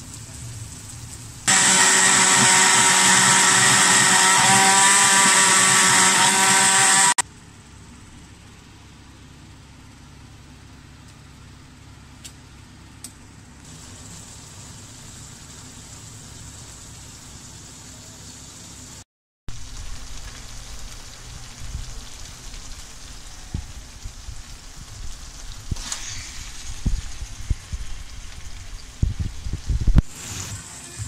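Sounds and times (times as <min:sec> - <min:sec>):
kitchen appliance motor running: 0:01.5 - 0:07.2, 0:25.8 - 0:27.3.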